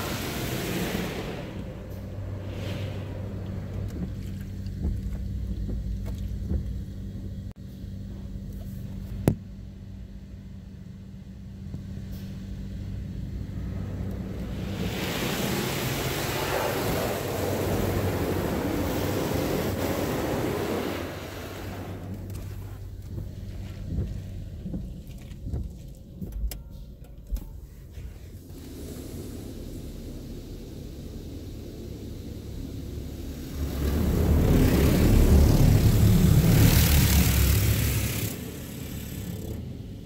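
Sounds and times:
high-pressure water spray drumming on car: 0:00.0 - 0:06.8, 0:14.2 - 0:24.8, 0:28.2 - 0:39.8
steady low hum: 0:00.0 - 0:40.0.

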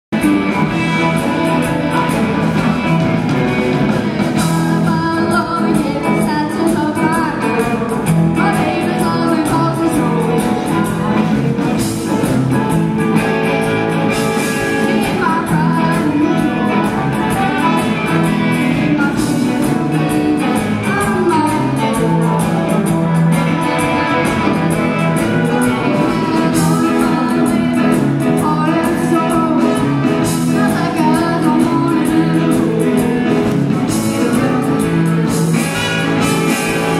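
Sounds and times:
live rock band: 0:00.1 - 0:36.9.

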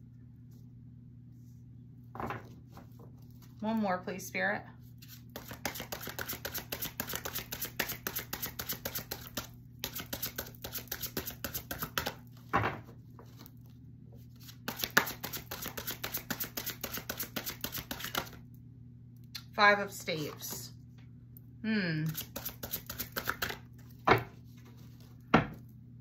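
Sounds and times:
cards being shuffled: 0:05.0 - 0:12.2, 0:14.3 - 0:18.4, 0:22.1 - 0:23.7.

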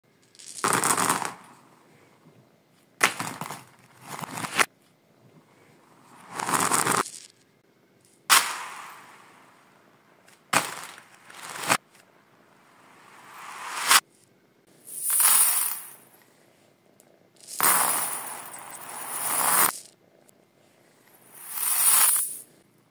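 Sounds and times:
reversed glass stones clattering: 0:00.2 - 0:01.6, 0:06.3 - 0:07.4, 0:14.8 - 0:16.2, 0:17.4 - 0:20.0, 0:21.0 - 0:22.6.

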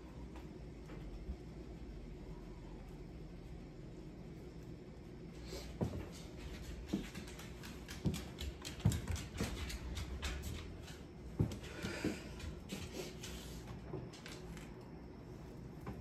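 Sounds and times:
dog claws clicking on wooden floor: 0:06.1 - 0:14.7.

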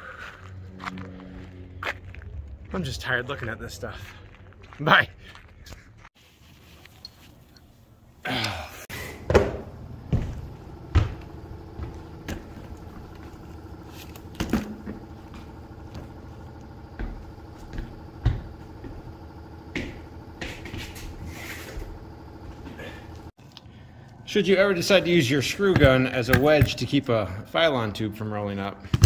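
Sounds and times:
steady machine hum: 0:07.3 - 0:28.5
knocks and bumps on plywood: 0:09.3 - 0:12.7.

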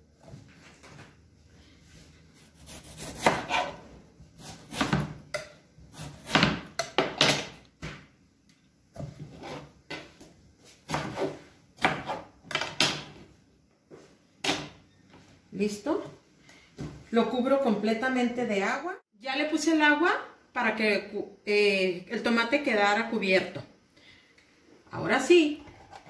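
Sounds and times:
knife scraping: 0:02.4 - 0:03.8, 0:09.0 - 0:09.8.

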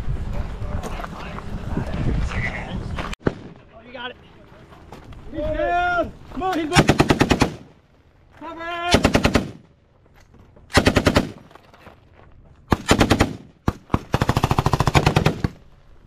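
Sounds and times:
single gunshots: 0:03.2 - 0:03.7
machine gun firing bursts: 0:06.7 - 0:07.7, 0:08.9 - 0:09.6, 0:10.7 - 0:11.4, 0:12.7 - 0:15.6.

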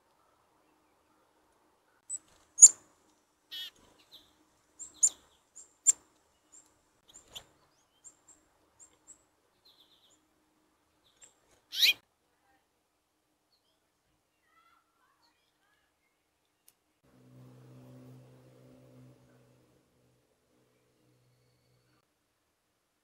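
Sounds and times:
songbirds chipping: 0:00.0 - 0:12.0.

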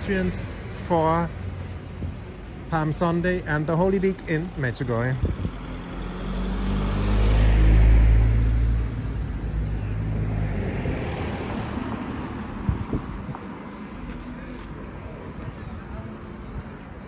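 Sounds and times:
vehicle engine rumble passing: 0:04.5 - 0:17.0.

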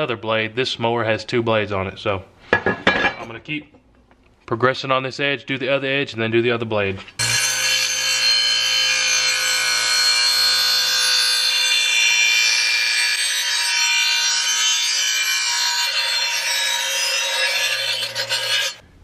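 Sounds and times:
grinder motor humming: 0:07.2 - 0:12.4
metal blade grinding with ringing: 0:07.2 - 0:18.8.

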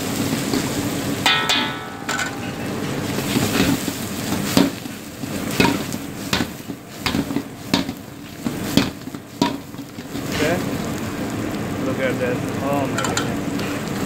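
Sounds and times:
utensil scraping and knocking wok: 0:00.0 - 0:11.2
meat and onions sizzling: 0:00.0 - 0:14.0.

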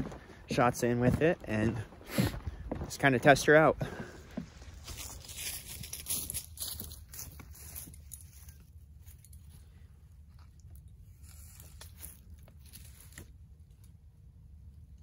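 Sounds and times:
rope and harness rustling: 0:04.8 - 0:14.0.

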